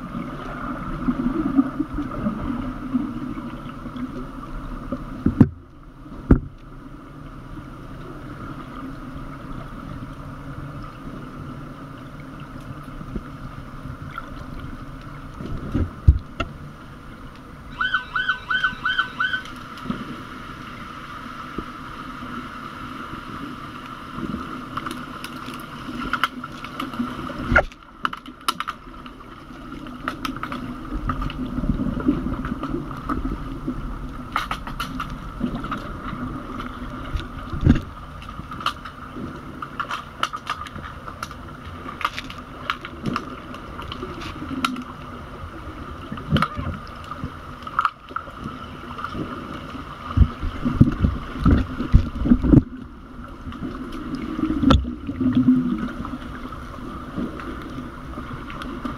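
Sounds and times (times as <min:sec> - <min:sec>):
underwater hum and water noise: 0:00.0 - 0:58.9.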